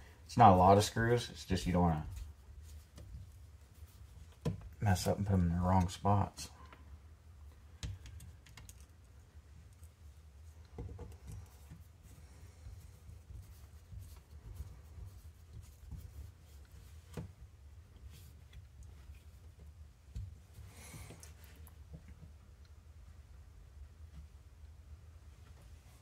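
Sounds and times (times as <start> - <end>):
small screws and plastic parts clicking: 7.7 - 9.9.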